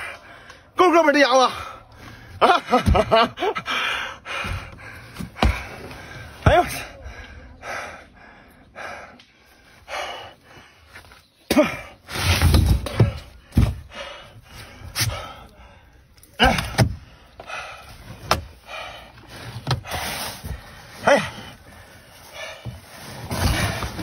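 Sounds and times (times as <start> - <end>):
man gasping and grunting: 12.9 - 22.8.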